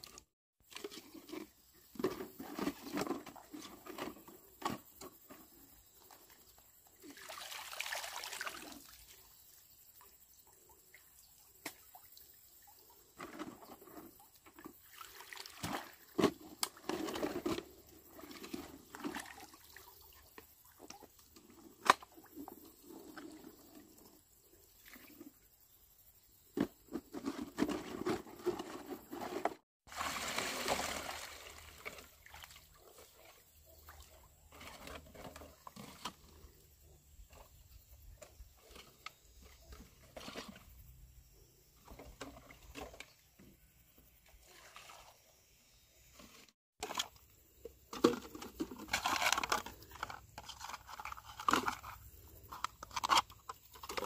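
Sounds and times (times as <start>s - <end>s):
water trickling and splashing: 6.0s - 24.2s, 29.8s - 36.5s.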